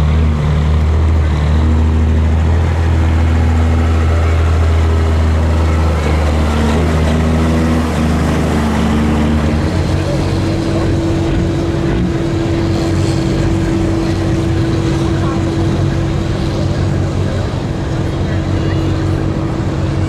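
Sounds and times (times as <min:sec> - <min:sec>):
truck diesel engine running: 0:00.0 - 0:20.0.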